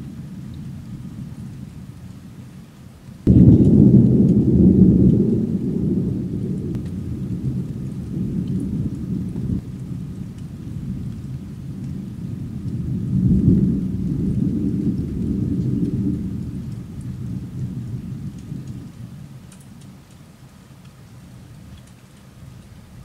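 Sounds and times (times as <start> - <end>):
thunder rumbling: 0.0 - 2.6, 3.2 - 20.2
rain falling: 0.0 - 23.0.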